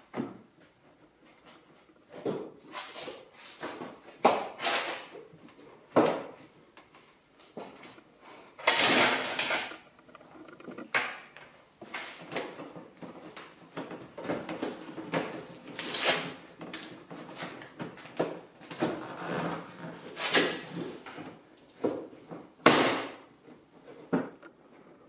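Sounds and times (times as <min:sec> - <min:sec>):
plastic scraping rustle: 0:07.0 - 0:21.4
plastic parts clicking and knocking: 0:08.6 - 0:11.5, 0:24.1 - 0:24.6.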